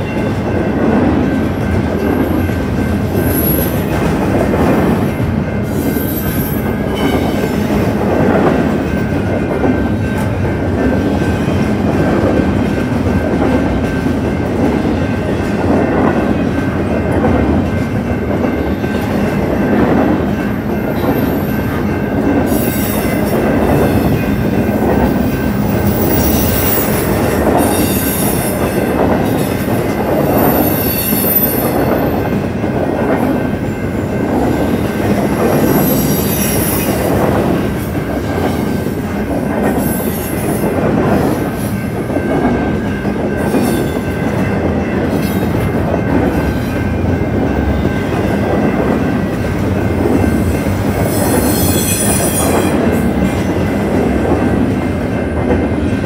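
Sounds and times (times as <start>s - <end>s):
freight train wheels rumbling: 0.0s - 56.0s
high-pitched wheel squeal: 51.2s - 52.7s.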